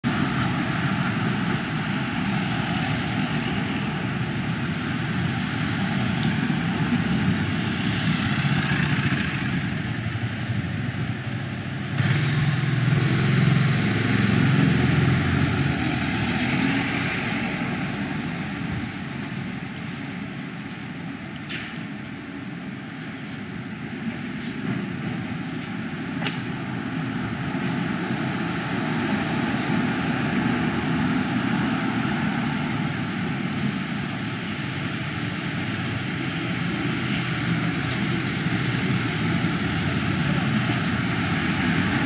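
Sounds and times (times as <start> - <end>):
traffic rumble: 0.0 - 42.0
vehicle passing: 6.4 - 10.0.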